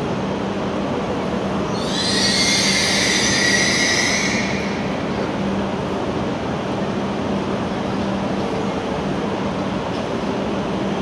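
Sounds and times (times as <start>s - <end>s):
station rumble and low hum: 0.0s - 11.0s
train brakes squealing: 1.7s - 5.6s.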